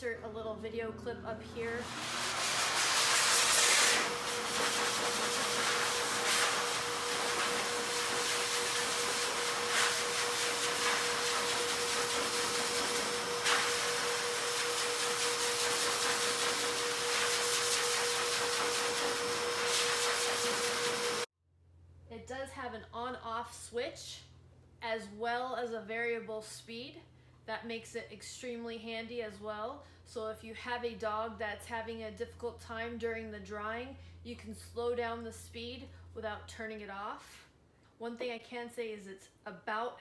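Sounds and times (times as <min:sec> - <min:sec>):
pet dryer blowing air: 0:01.4 - 0:21.3.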